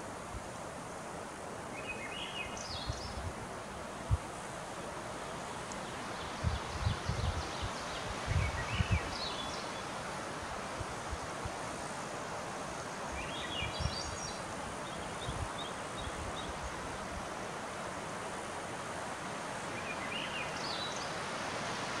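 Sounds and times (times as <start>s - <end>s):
wind through trees: 0.0s - 22.0s
wind thumps on microphone: 8.2s - 9.1s.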